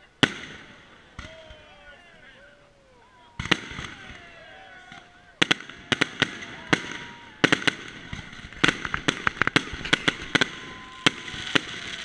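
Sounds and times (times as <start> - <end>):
fireworks cracking and popping: 0.2 - 1.6, 3.4 - 4.3, 4.9 - 12.0.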